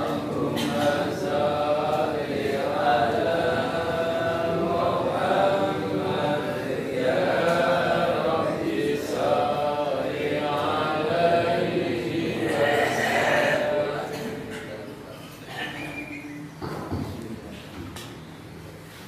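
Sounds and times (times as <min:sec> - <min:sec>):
men chanting in unison: 0:00.0 - 0:14.5.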